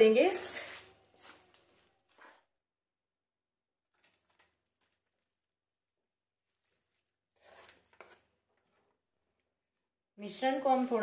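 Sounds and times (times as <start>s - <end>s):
metal spoon scraping a pan: 0.0s - 1.4s, 7.3s - 9.0s.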